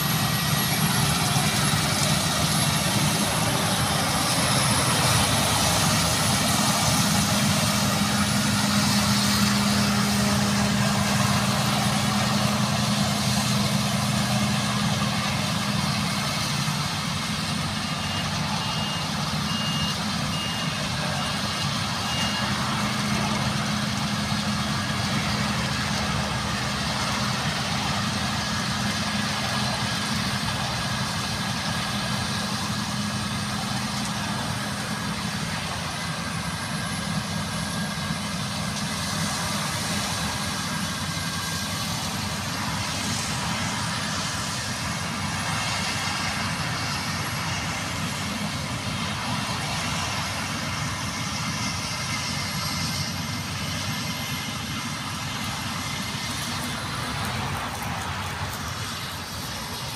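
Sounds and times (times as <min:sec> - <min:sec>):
combine harvester engine drone: 0:00.0 - 0:59.9
high beeping alarm: 0:17.4 - 0:23.3.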